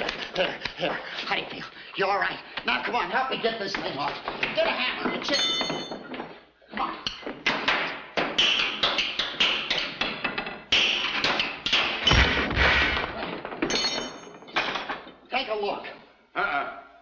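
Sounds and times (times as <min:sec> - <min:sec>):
hammer and chisel striking metal: 0:07.1 - 0:12.4.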